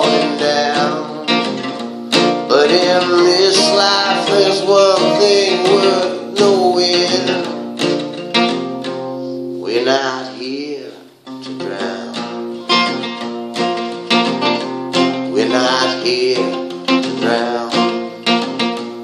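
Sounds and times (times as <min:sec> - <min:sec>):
man singing long notes: 0:00.0 - 0:01.4, 0:02.5 - 0:07.6, 0:09.6 - 0:12.4, 0:15.2 - 0:18.0
acoustic guitar strumming: 0:00.0 - 0:19.0.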